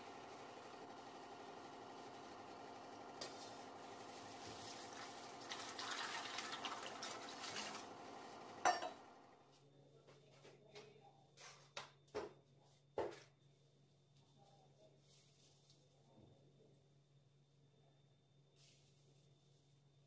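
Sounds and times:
water pouring into metal bowl: 4.4 - 7.9.

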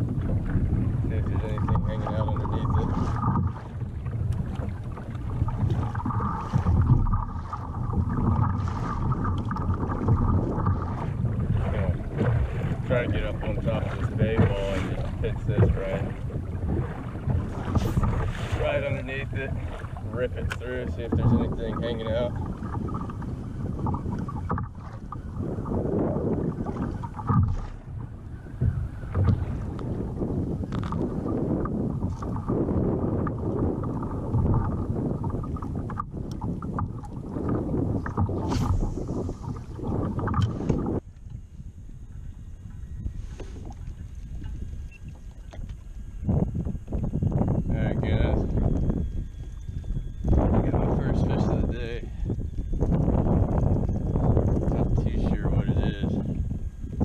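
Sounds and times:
low thumps: 0.0 - 42.0
water slapping against kayak hull: 0.0 - 57.0
wind buffeting microphone: 0.0 - 57.0.

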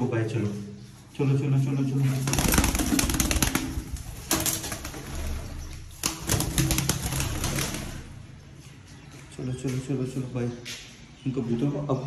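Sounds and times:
pigeons flapping wings: 2.2 - 8.1.

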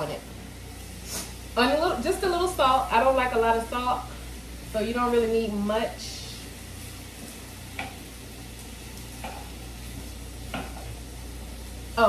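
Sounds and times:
low steady hum: 0.0 - 12.0
vegetables sizzling in oil: 0.0 - 12.0
wooden spatula scraping pan: 9.0 - 11.0.

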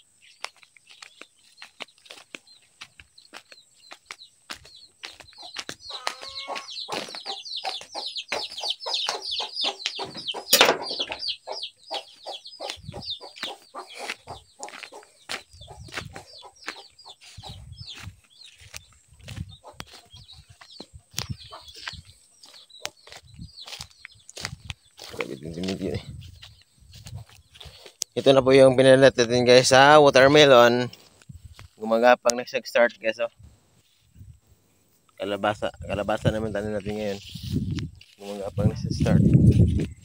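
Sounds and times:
chickens calling: 0.0 - 40.0
sharp knock: 10.0 - 11.2.

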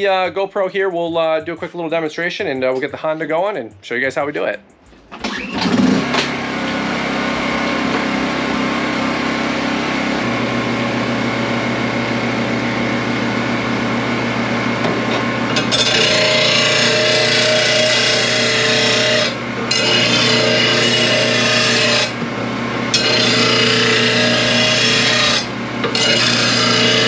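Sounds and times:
generator and grinder humming: 4.5 - 27.0
grinding wheel on steel blade: 5.3 - 13.2, 14.8 - 27.0.

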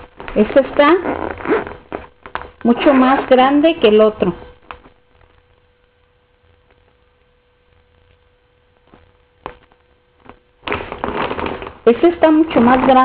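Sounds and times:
plastic bag clicks and crinkles: 0.0 - 0.7, 1.4 - 3.2, 4.6 - 5.5, 8.8 - 13.0
faint steady hum: 0.0 - 13.0.

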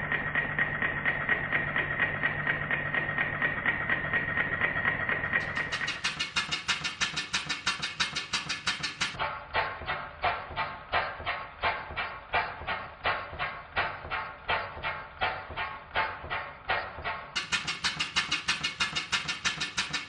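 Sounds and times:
steam engine exhaust beats: 0.0 - 20.0.

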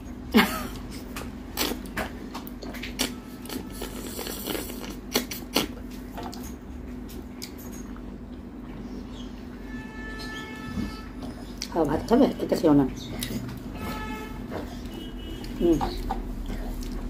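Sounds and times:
low steady hum: 0.0 - 17.0
chewing: 0.9 - 8.8, 11.2 - 12.1, 13.0 - 13.8, 14.6 - 17.0.

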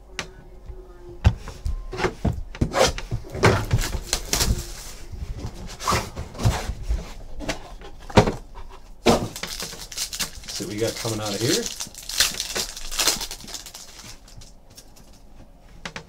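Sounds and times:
packaging rustling: 3.3 - 6.2, 9.0 - 15.3.

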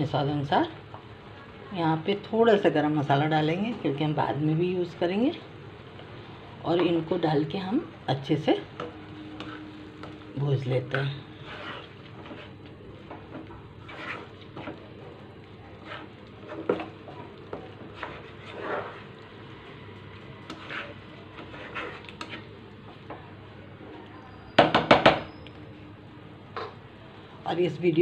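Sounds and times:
spatula scraping thick paste in pan: 9.3 - 10.2, 10.9 - 14.9, 15.7 - 19.8, 20.4 - 22.6.

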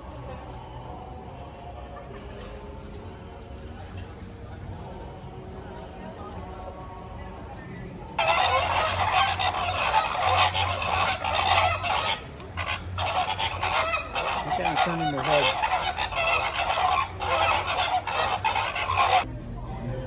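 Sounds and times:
flock of birds honking: 8.2 - 19.3.

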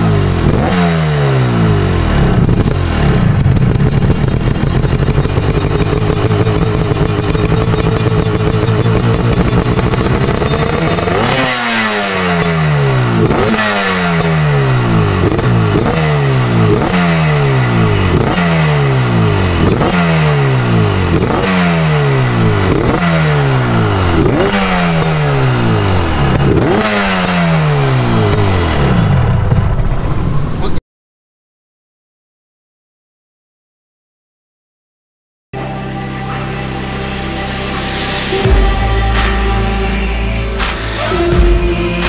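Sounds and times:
two-stroke motorcycle engine revving: 0.0 - 29.5.

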